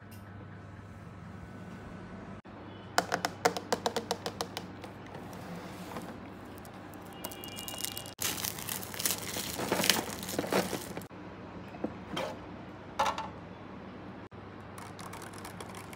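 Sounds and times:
plastic crinkling and rattling: 0:05.2 - 0:11.1.

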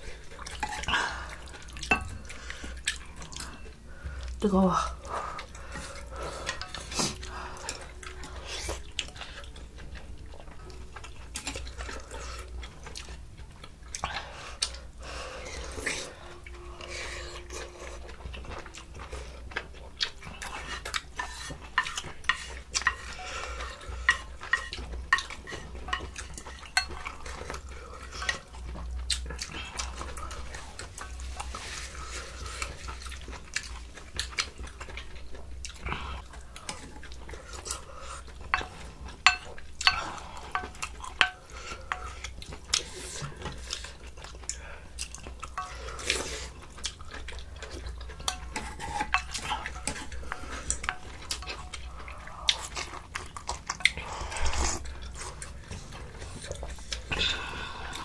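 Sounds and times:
utensils clinking on bowls: 0:00.4 - 0:03.8, 0:20.2 - 0:33.6, 0:36.6 - 0:44.3, 0:45.2 - 0:57.5.

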